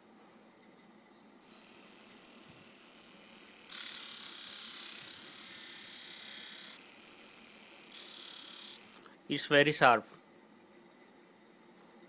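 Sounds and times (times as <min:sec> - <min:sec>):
harsh grinding hiss: 0:01.4 - 0:09.1
small motor spinning: 0:01.4 - 0:09.1.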